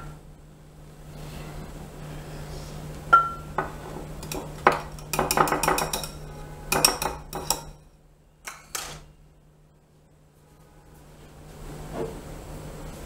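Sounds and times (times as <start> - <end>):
spoon clinking on glass: 4.2 - 7.8.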